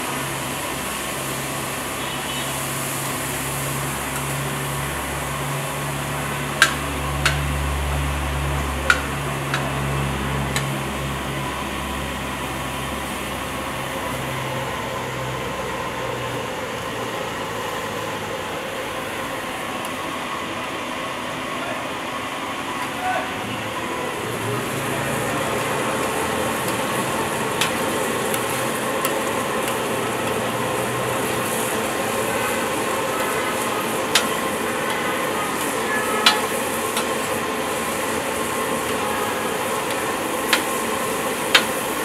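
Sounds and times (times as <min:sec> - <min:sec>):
meat sizzling on a griddle: 0:00.1 - 0:14.1, 0:24.1 - 0:42.0.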